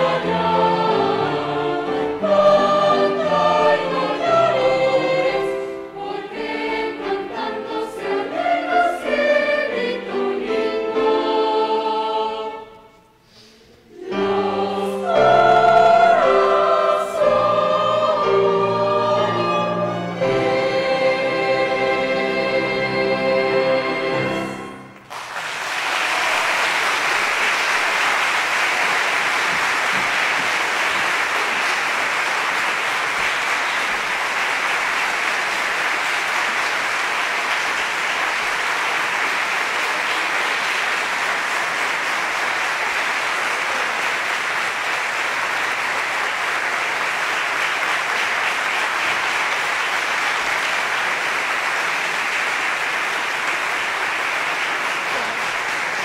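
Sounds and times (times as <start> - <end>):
audience applause: 25.0 - 56.0.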